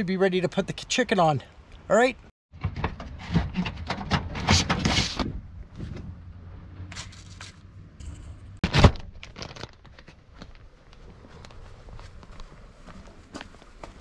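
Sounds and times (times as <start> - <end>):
plastic bag crinkling: 9.1 - 10.0.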